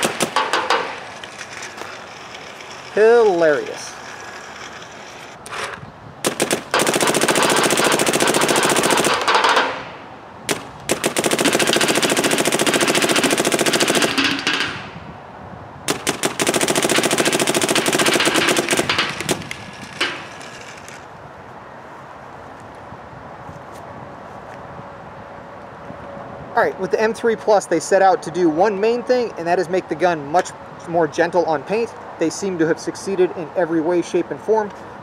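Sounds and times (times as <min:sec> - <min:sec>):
paintball marker firing: 0:00.0 - 0:01.0, 0:06.2 - 0:15.0.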